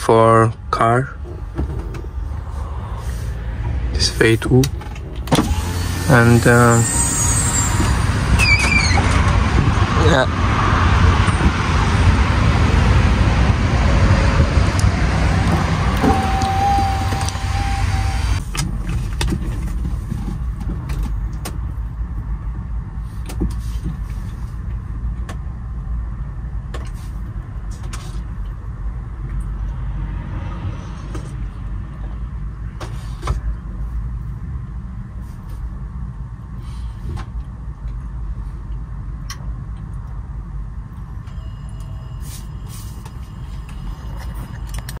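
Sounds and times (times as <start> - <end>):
diesel truck engine rumble: 0.0 - 45.0.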